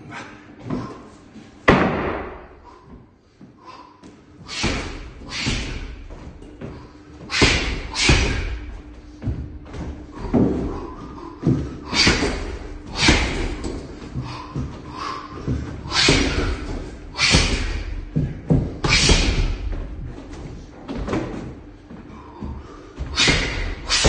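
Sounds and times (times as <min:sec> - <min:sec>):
punches thudding on heavy bag: 0:01.7 - 0:02.6, 0:04.5 - 0:06.2, 0:07.3 - 0:19.9, 0:23.0 - 0:24.0.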